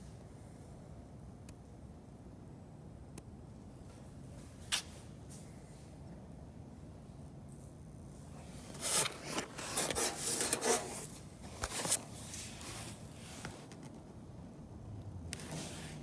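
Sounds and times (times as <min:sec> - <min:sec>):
camera handling rubbing and scraping: 0:08.7 - 0:13.9.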